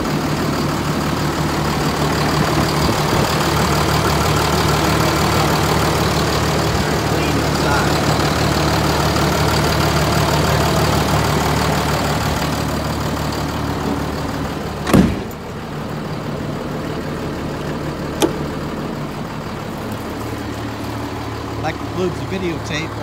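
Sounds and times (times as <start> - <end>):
diesel truck engine idling: 0.0 - 23.0
loud thump: 14.8 - 15.4.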